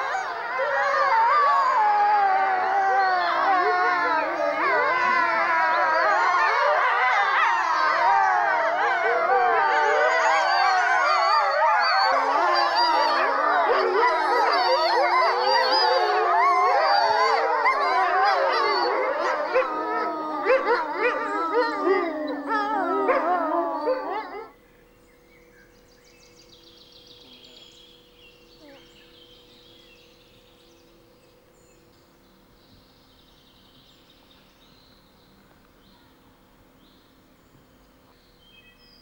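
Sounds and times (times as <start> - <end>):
wolves howling in chorus: 0.0 - 24.6, 26.6 - 30.0.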